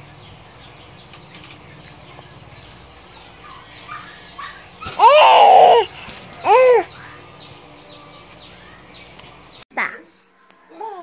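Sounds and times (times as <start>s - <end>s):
baby squealing: 4.9s - 6.9s.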